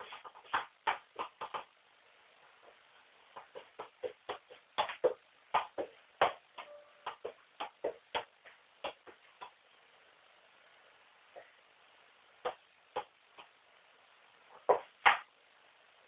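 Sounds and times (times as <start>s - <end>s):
football kicked repeatedly: 3.4s - 9.5s, 14.7s - 15.3s.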